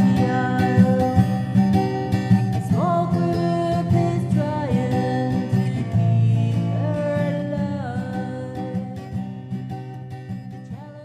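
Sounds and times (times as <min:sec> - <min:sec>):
person singing: 0:00.0 - 0:01.5, 0:02.5 - 0:09.1
plucked acoustic guitar: 0:00.0 - 0:11.0.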